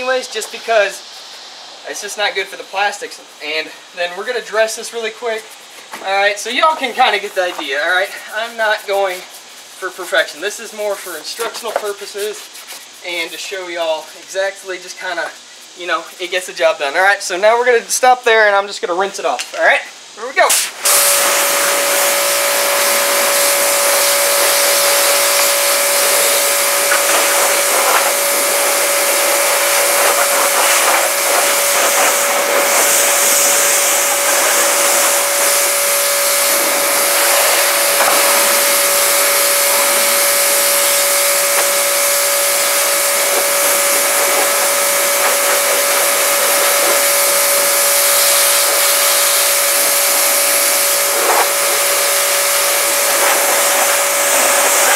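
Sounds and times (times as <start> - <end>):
water spray hissing: 0.0 - 18.1, 20.2 - 54.9
pressure washer motor hum: 20.5 - 54.9.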